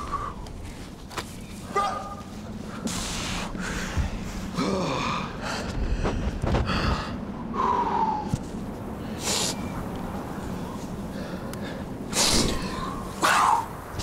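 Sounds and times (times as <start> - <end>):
person breathing hard and grunting: 3.0 - 8.2.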